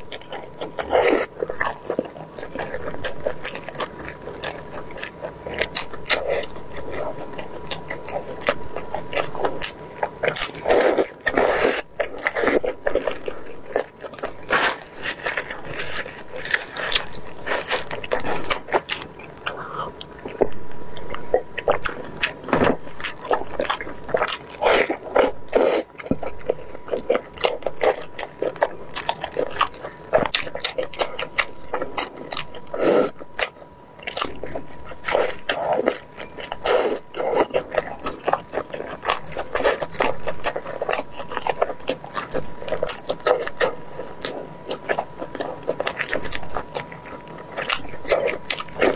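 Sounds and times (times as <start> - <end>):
wet biting and chewing: 0.0 - 48.9.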